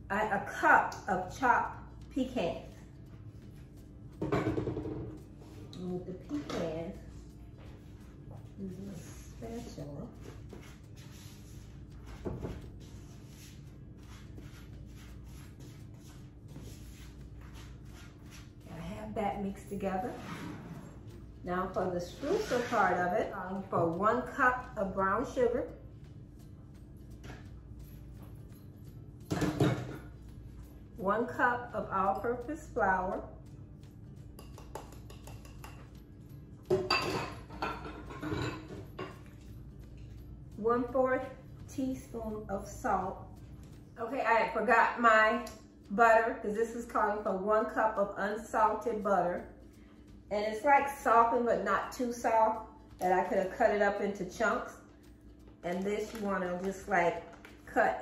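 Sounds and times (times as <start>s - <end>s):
steady low hum: 0.0s - 58.0s
spatula scraping a bowl: 19.8s - 21.1s, 22.0s - 23.1s.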